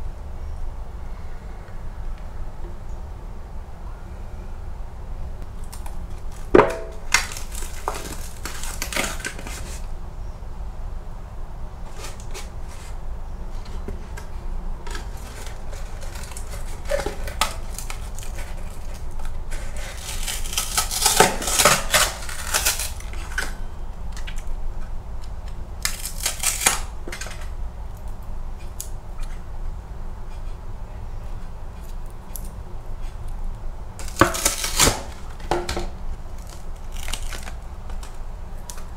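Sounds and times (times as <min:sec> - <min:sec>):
cardboard and foil crinkling: 0:05.6 - 0:09.9, 0:11.9 - 0:24.5, 0:25.8 - 0:27.6, 0:34.0 - 0:38.9.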